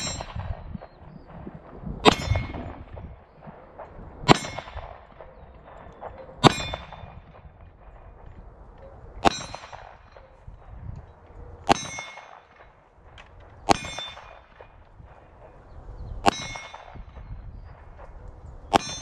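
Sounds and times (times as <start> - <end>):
pistol shots: 0.0 - 8.4, 9.2 - 10.4, 11.6 - 15.2, 16.2 - 19.0
steel targets clanging: 6.4 - 7.1, 11.7 - 12.7.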